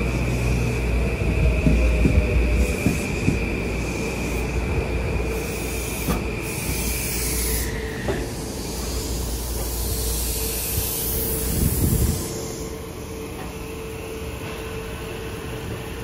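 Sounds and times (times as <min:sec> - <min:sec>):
high-pitched train squeal: 0:00.0 - 0:16.0
train running rumble: 0:00.0 - 0:16.0
hiss: 0:05.3 - 0:13.0.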